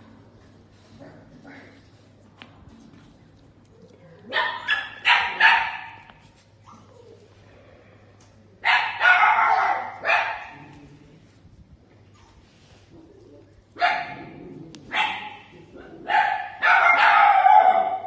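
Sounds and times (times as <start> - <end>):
small dog barking: 4.3 - 6.1, 8.6 - 10.6, 13.8 - 14.2, 14.9 - 18.0.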